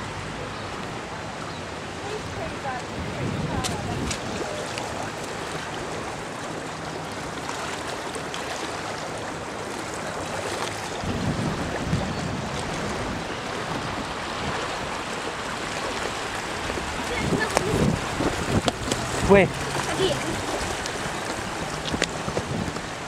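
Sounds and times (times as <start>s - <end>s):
river water rushing: 0.0s - 23.0s
low bumps: 16.5s - 23.0s.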